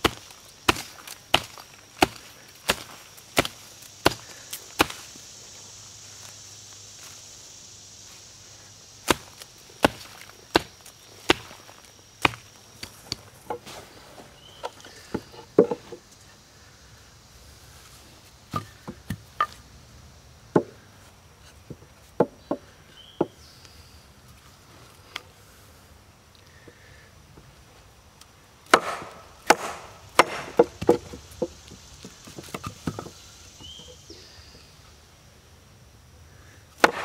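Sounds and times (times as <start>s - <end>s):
light wooden knocks and taps: 14.6s - 16.0s.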